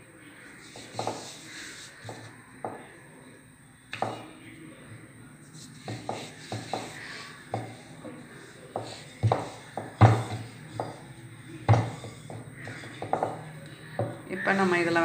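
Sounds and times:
rolling pin knocking on board: 0.8s - 1.4s, 5.8s - 14.2s.

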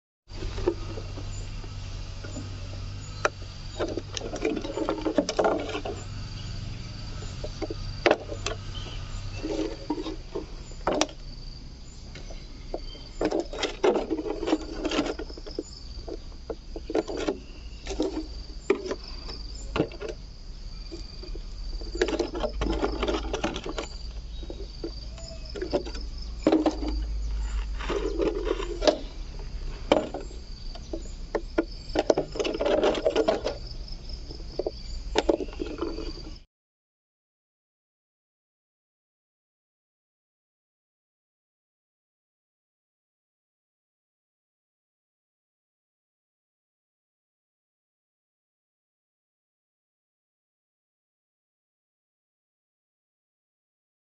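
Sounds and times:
insects chirping: 0.3s - 36.5s.

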